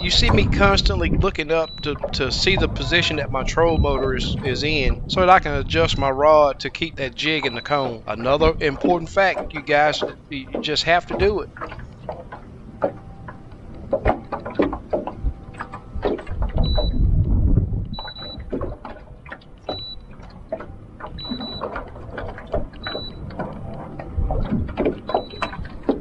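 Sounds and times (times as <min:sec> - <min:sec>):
waves slapping against boat hull: 0:00.0 - 0:26.0
wind rumbling on microphone: 0:00.0 - 0:26.0
short high electronic beep: 0:07.4 - 0:07.9.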